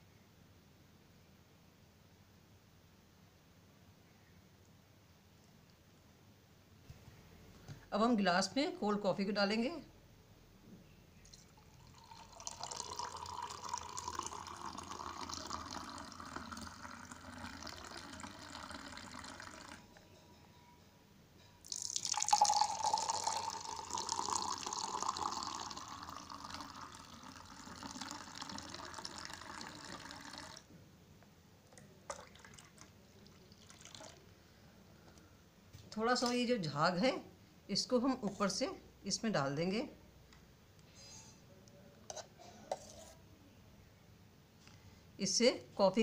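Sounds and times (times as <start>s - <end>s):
liquid pouring into a glass: 11.3s - 19.9s, 21.6s - 30.7s, 31.8s - 34.3s.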